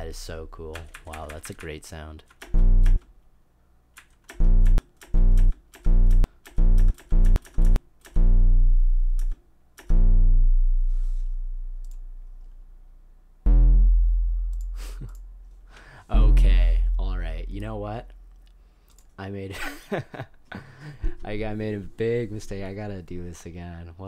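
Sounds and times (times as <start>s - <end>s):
computer keys clicking: 0.7s - 3.1s, 4.0s - 8.2s, 9.2s - 9.9s, 18.9s - 19.1s
synthesized square-wave plucked notes: 2.6s - 3.0s, 8.2s - 9.2s, 9.9s - 12.8s, 13.4s - 15.5s.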